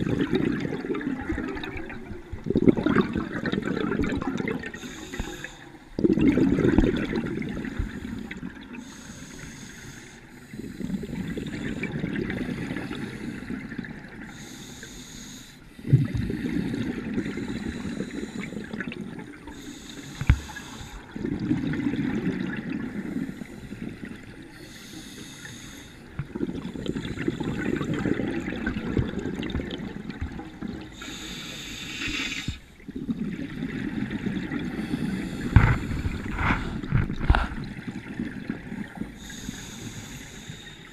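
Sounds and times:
exhaust bubbles underwater: 0:00.0 - 0:09.0, 0:10.5 - 0:14.4, 0:15.8 - 0:25.3, 0:26.0 - 0:40.9
regulator inhale hiss: 0:04.8 - 0:05.9, 0:07.6 - 0:13.7, 0:14.3 - 0:18.7, 0:19.5 - 0:21.1, 0:22.9 - 0:26.2, 0:31.0 - 0:32.7, 0:34.7 - 0:36.9, 0:39.2 - 0:40.9.

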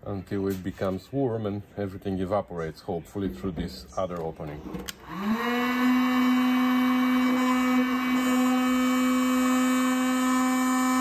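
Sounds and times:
heat gun humming and blowing air: 0:04.9 - 0:11.0.

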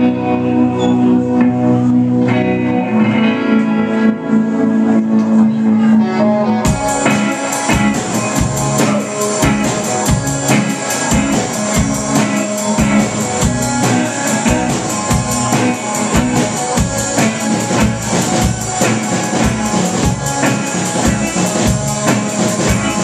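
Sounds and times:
electric guitars: 0:00.0 - 0:23.0
drum kit beat: 0:06.6 - 0:23.0.

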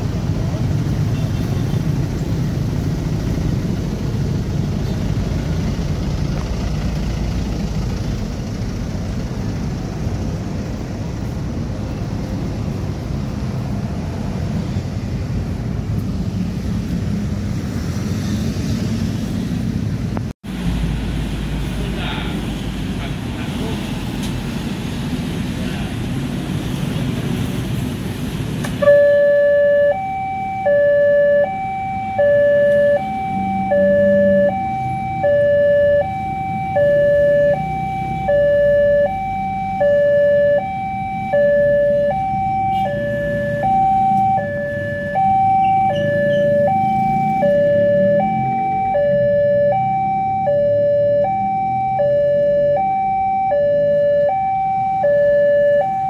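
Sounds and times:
level crossing alarm two tones: 0:28.8 - 0:56.0.

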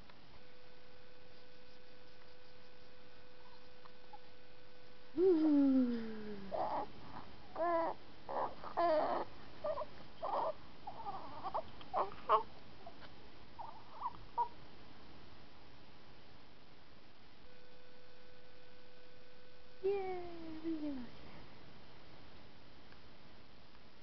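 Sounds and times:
baby cooing: 0:05.2 - 0:12.5.

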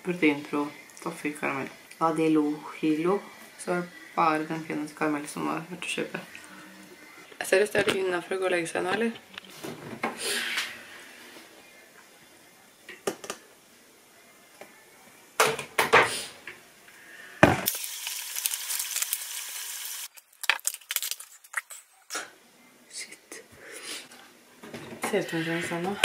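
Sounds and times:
carbonated drink fizzing hiss: 0:17.0 - 0:20.1.

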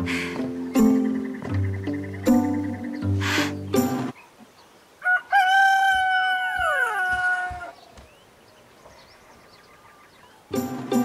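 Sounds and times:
rooster crowing: 0:05.0 - 0:07.8.

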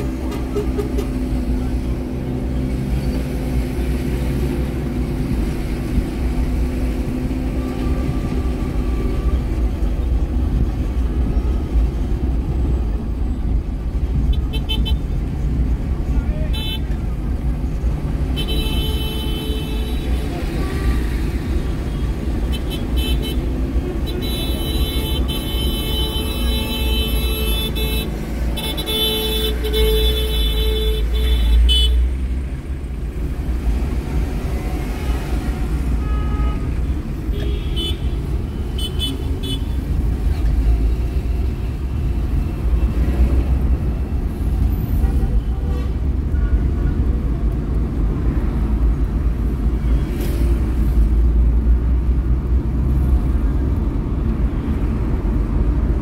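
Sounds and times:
car engine and road rumble: 0:00.0 - 0:56.0
car horns tooting: 0:21.9 - 0:32.1.

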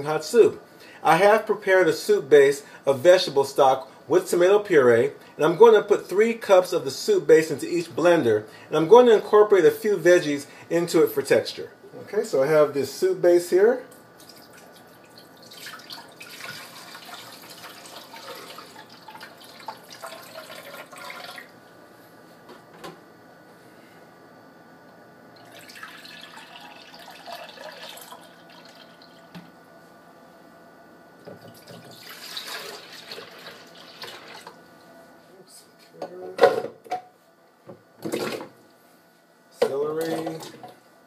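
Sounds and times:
liquid pouring into blender jars: 0:14.2 - 0:21.5, 0:25.4 - 0:29.2, 0:31.4 - 0:34.5.

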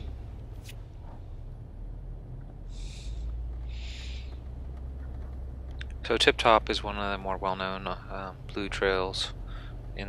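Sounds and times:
car engine low drone: 0:00.0 - 0:10.0
breathy puffs: 0:02.6 - 0:04.6.

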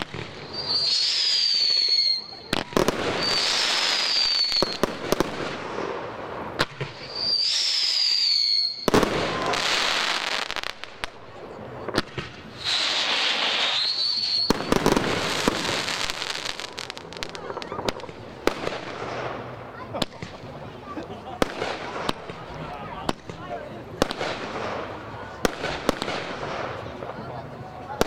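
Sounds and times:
firework whistles: 0:00.0 - 0:05.4, 0:06.6 - 0:10.9, 0:12.0 - 0:19.2
firework bangs: 0:00.0 - 0:20.6, 0:21.2 - 0:27.3
firework crackling: 0:00.0 - 0:28.0.

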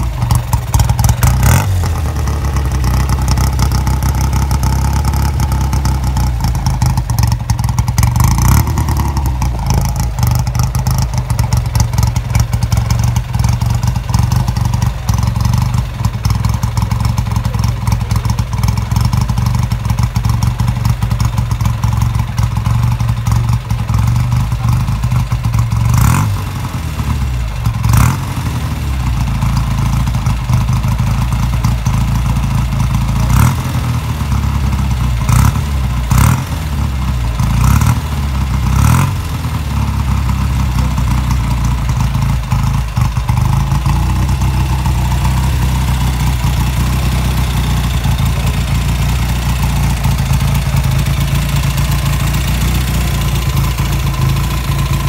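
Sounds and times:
motorcycle throttle revs: 0:00.0 - 0:21.3, 0:23.4 - 0:29.9, 0:32.2 - 0:55.0
motorcycle engine idling: 0:00.0 - 0:55.0.

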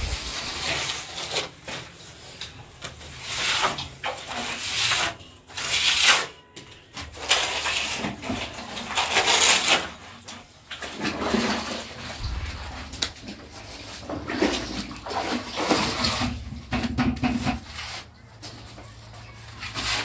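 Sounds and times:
plastering tool scraping plaster: 0:00.0 - 0:02.2, 0:03.0 - 0:06.4, 0:07.0 - 0:10.1, 0:19.4 - 0:20.0.

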